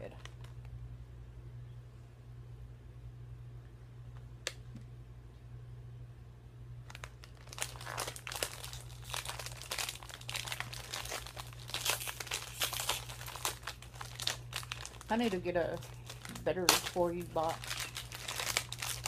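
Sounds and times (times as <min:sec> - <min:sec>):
plastic wrapper crinkling: 0:00.0 - 0:00.7, 0:06.8 - 0:19.0.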